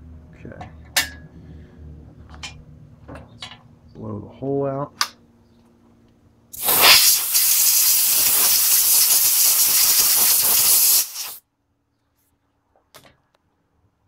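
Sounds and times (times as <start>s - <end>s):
compressed air blow gun hissing: 6.6s - 11.4s.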